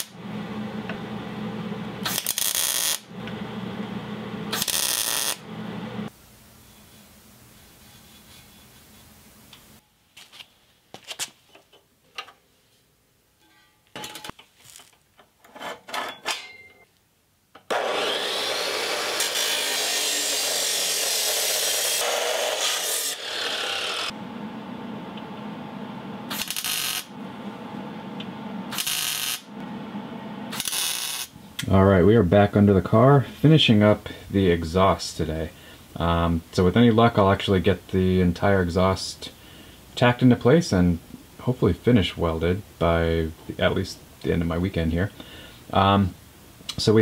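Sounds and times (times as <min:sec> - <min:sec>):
welder tack-welding: 0:02.0 - 0:03.1, 0:04.5 - 0:05.5, 0:17.6 - 0:24.1, 0:26.3 - 0:27.1, 0:28.7 - 0:29.5, 0:30.5 - 0:31.4
chop saw cutting steel tube: 0:17.7 - 0:24.1.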